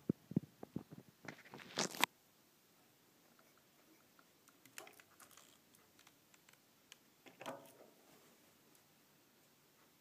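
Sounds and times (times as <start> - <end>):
faint scattered clicks: 3.3 - 7.8.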